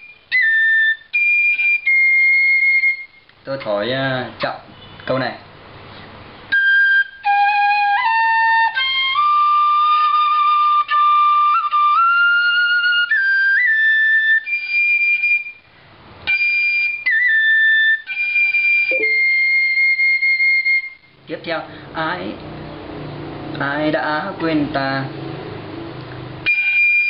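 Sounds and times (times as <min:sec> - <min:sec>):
bamboo flute melody: 0:00.0 - 0:03.9, 0:06.5 - 0:21.2, 0:26.4 - 0:27.0.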